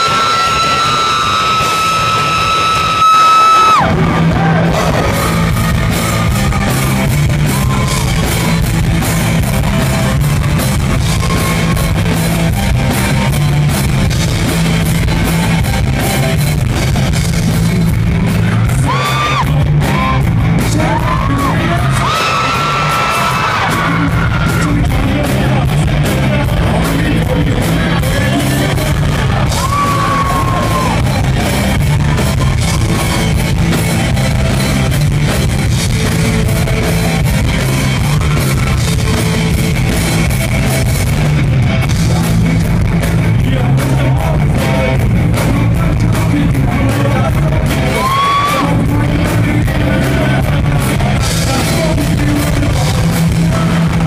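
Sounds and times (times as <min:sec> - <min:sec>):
live rock band playing: 0:00.0 - 0:54.0
person singing and shouting: 0:18.4 - 0:33.3, 0:43.4 - 0:54.0.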